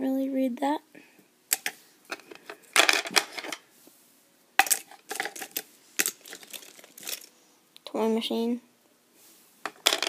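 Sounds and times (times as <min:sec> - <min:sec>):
plastic fingerboards clattering: 0:09.7 - 0:10.0.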